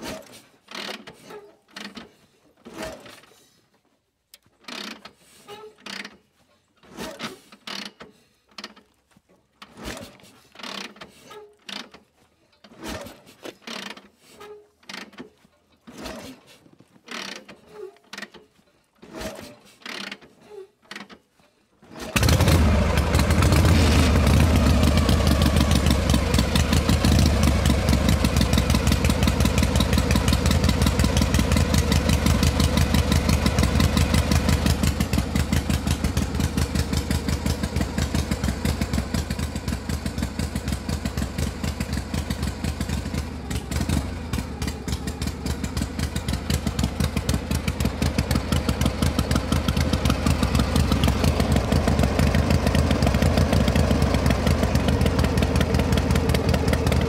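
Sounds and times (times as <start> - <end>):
vehicle engine idling: 22.2 - 57.0.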